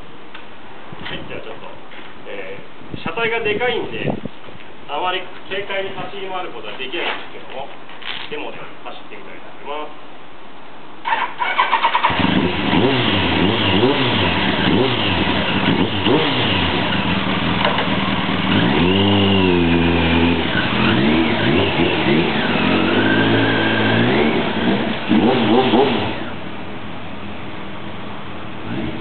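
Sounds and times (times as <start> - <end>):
motorcycle starter cranking: 11.1 - 12.5
motorcycle engine revving: 11.1 - 26.8, 27.4 - 29.0
motorcycle pulling away: 11.1 - 29.0.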